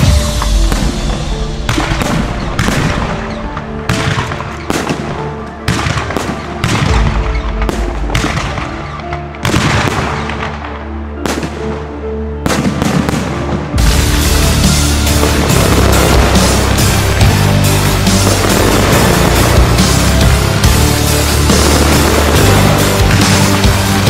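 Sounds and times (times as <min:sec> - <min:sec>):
music playing: 0:00.0 - 0:24.0
firework shells bursting: 0:12.6 - 0:24.0.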